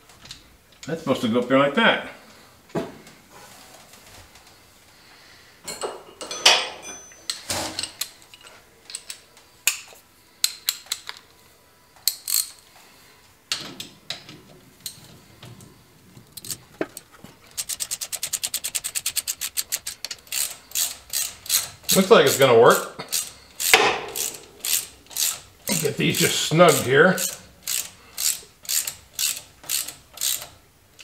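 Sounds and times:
metal parts clinking and knocking: 16.3s - 22.0s, 22.7s - 30.5s
socket ratchet clicking rapidly: 17.5s - 30.6s.

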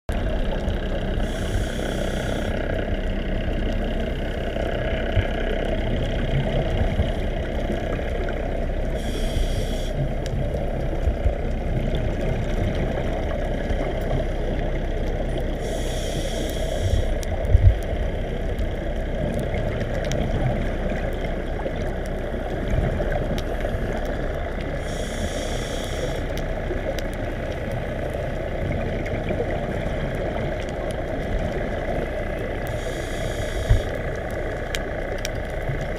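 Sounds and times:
muffled underwater rumble: 0.1s - 35.9s
diver breathing through regulator: 1.2s - 2.7s, 8.9s - 10.0s, 15.6s - 17.2s, 24.8s - 26.3s, 32.7s - 34.1s.

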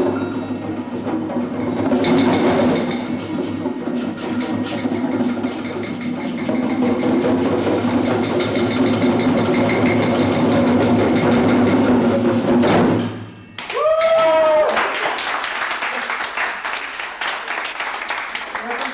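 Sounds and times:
djembe drums rolling: 0.0s - 14.6s
person whooping: 13.6s - 15.0s
people cheering: 13.6s - 18.9s
people clapping: 13.6s - 18.9s.

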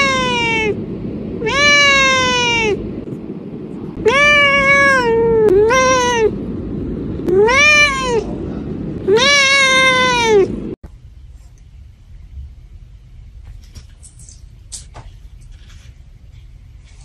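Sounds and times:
cat meowing: 0.0s - 0.8s, 1.4s - 2.8s, 4.0s - 6.4s, 7.2s - 8.3s, 9.0s - 10.5s.

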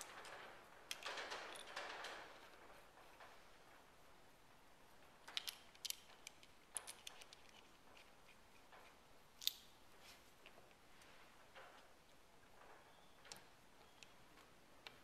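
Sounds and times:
small metal part clicking: 5.3s - 8.1s.

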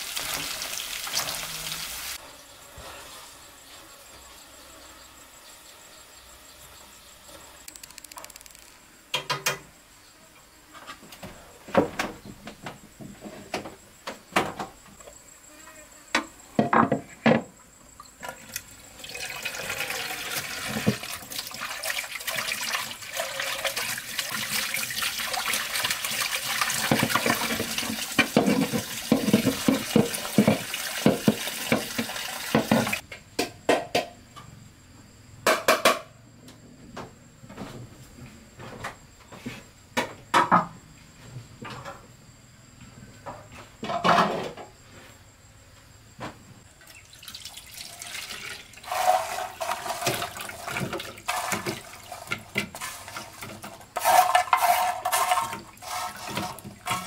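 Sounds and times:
tap water running into basin: 0.0s - 2.2s, 18.2s - 33.0s, 46.8s - 57.0s.

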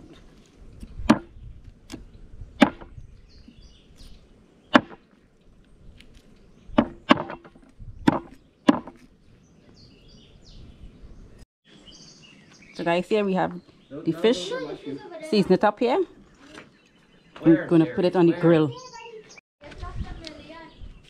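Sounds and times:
knife chopping on wooden board: 4.8s - 5.0s, 6.8s - 7.5s, 8.1s - 9.0s.

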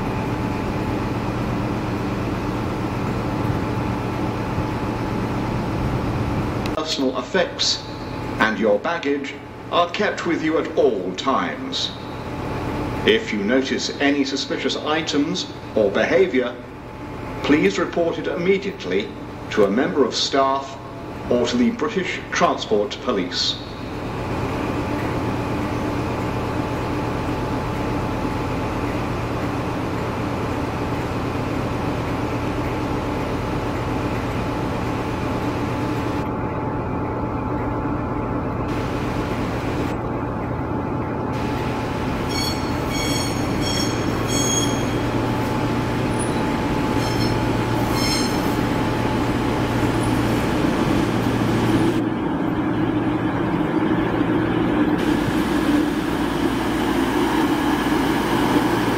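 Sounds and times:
diesel train engines humming: 0.0s - 58.9s
train wheels squealing: 42.3s - 45.2s, 46.2s - 48.6s.

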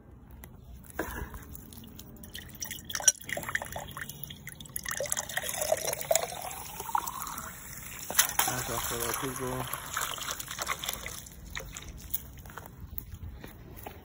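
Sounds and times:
hose water splashing into jar: 1.6s - 12.2s.

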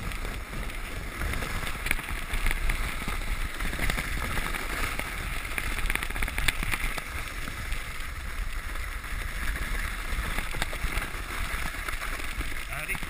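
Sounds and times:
clicks over bumps: 0.0s - 13.0s
sled scraping over snow: 0.0s - 13.0s
wind rumbling on microphone: 0.0s - 13.0s.

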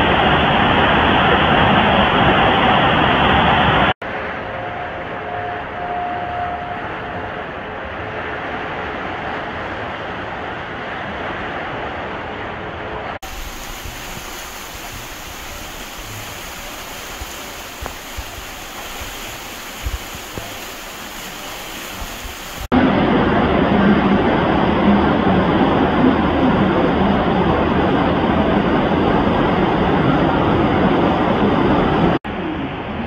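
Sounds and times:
water rushing down concrete channel: 13.2s - 22.8s.

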